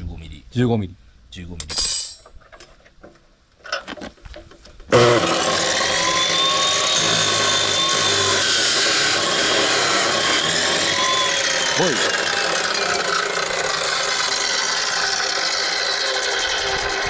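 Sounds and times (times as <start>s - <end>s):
cut-off saw grinding metal: 4.9s - 17.0s.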